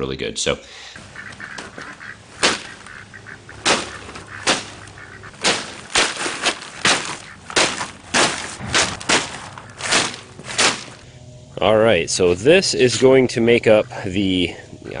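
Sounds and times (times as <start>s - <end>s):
bags thudding on concrete: 2.4s - 2.9s, 3.6s - 11.0s.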